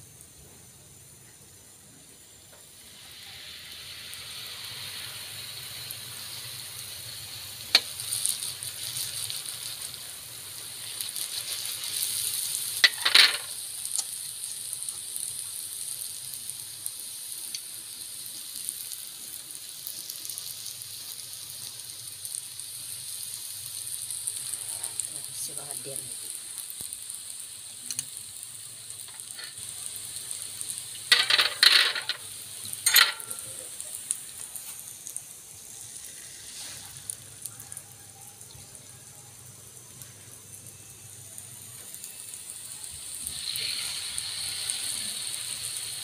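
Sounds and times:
oil sizzling: 0.0s - 46.0s.

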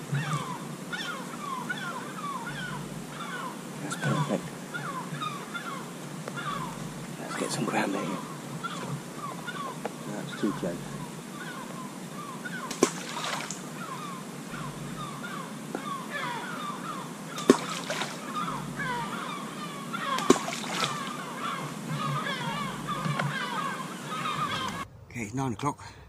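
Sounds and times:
birds calling: 0.0s - 26.0s
bait splashing into river: 12.7s - 13.7s, 17.4s - 18.4s, 20.1s - 21.2s.

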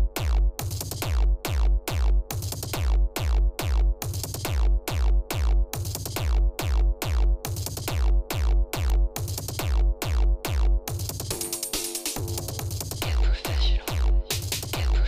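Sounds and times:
electronic club music: 0.0s - 15.0s
heavy kick drums: 0.0s - 15.0s.

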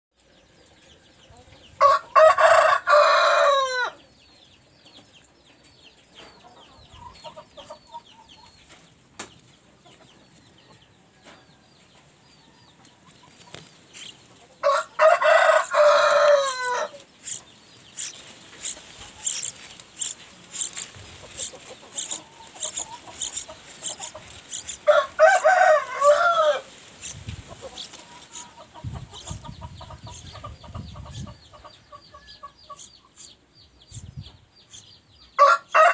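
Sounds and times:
rooster crowing: 1.8s - 4.0s, 14.6s - 17.0s, 24.8s - 26.7s, 35.4s - 35.9s
high chirping: 13.9s - 14.2s, 17.0s - 24.9s, 27.0s - 35.3s.

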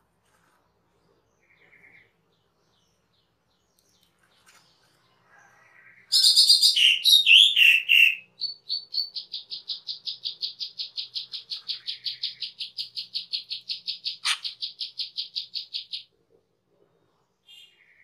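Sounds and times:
starling harsh chattering calls: 14.1s - 14.7s.

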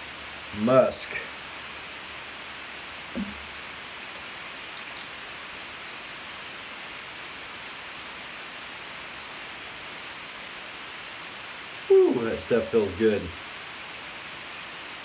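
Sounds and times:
microphone hiss: 0.0s - 15.0s.

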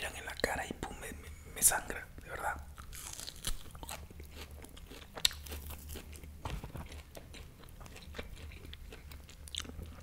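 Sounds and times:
biting and chewing steak: 2.7s - 10.0s.

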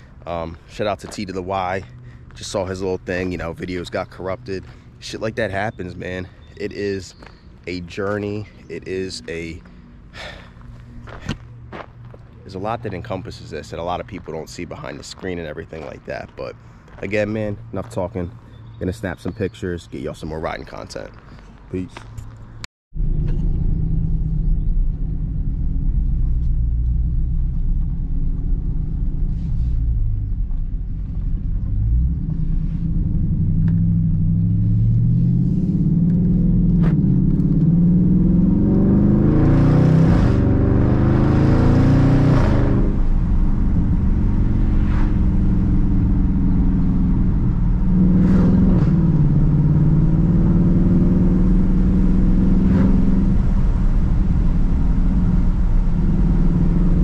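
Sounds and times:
car engine accelerating: 22.2s - 57.0s.

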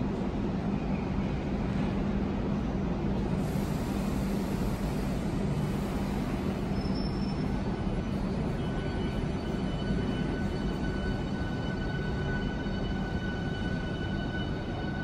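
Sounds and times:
electric train hum and rumble: 0.0s - 15.0s
faint high whining tones: 6.2s - 15.0s.

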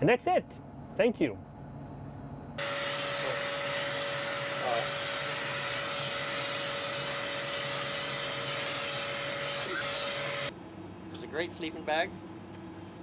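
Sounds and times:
hair clippers with vacuum suction: 2.6s - 10.5s.

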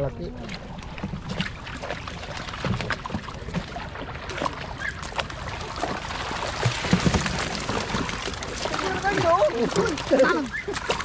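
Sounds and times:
water splashing and sloshing: 0.0s - 11.0s
fish slaps and knocks: 6.5s - 11.0s.

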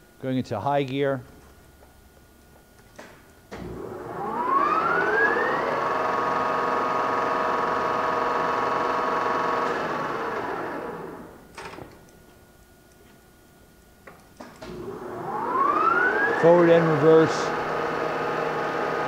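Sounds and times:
lathe gears and spindle whine: 3.6s - 11.4s, 14.7s - 19.0s.

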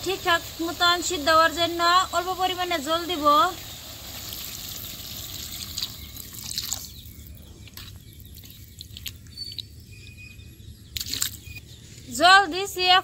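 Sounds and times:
water splashing into wok: 0.0s - 7.0s.

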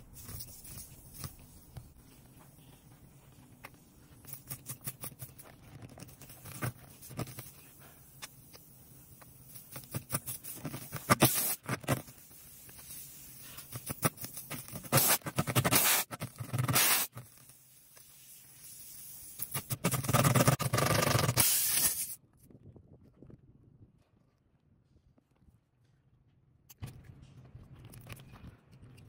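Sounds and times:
tire plug tool scraping rubber: 0.1s - 8.4s, 9.3s - 17.5s, 19.4s - 22.2s.

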